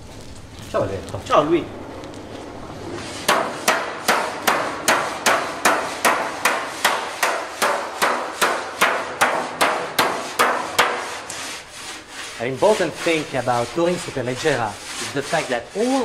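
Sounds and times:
hammer blows on metal panel: 3.3s - 11.2s.

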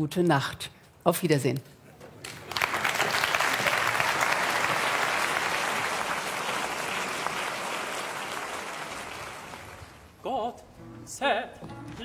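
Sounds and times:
audience applauding: 2.2s - 10.1s.

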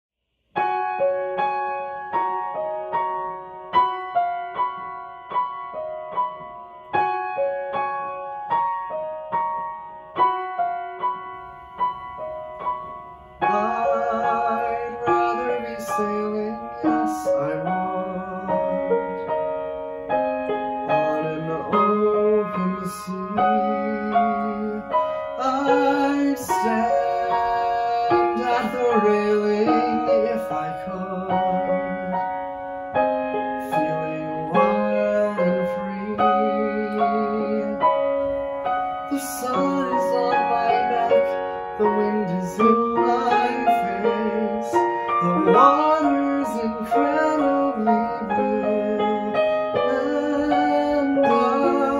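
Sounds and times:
piano chords: 0.5s - 51.9s
person singing: 13.4s - 19.6s, 20.4s - 51.9s.

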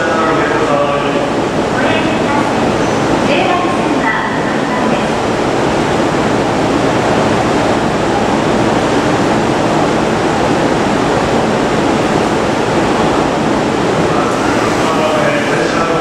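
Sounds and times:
train equipment rushing noise: 0.0s - 16.0s.

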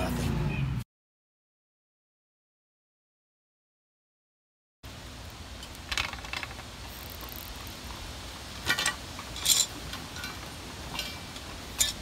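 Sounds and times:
pliers clinking on metal pipe: 8.7s - 12.0s.

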